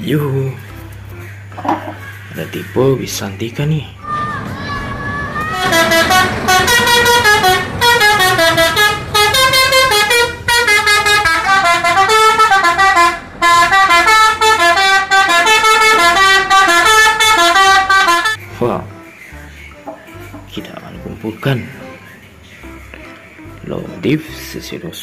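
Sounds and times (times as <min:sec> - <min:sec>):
multi-tone musical bus horn: 0:04.2 - 0:19.3.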